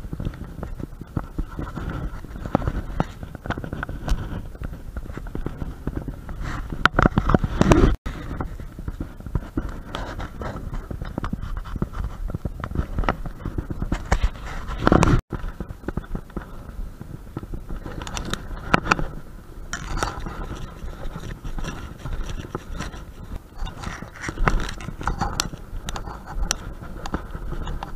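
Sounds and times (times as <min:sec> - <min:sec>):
camera handling scraping: 0:19.8 - 0:27.9.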